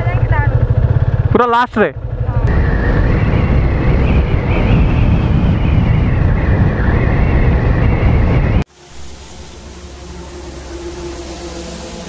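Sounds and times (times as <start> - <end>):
motorcycle engine running: 0.0 - 8.6
wind rumble on microphone: 2.2 - 9.2.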